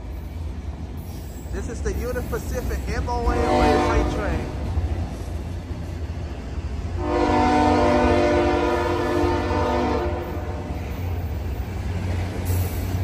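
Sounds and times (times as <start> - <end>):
locomotive horn chord: 3.3 - 4.5, 7.0 - 10.8.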